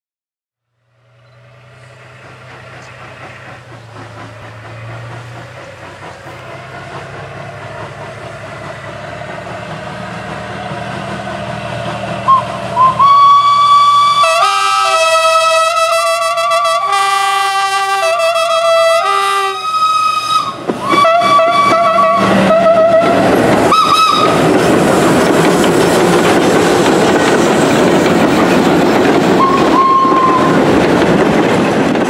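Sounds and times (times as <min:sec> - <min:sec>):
locomotive rumble: 0:00.7 - 0:32.0
train whistle toots and blast: 0:12.2 - 0:24.5, 0:29.4 - 0:30.6.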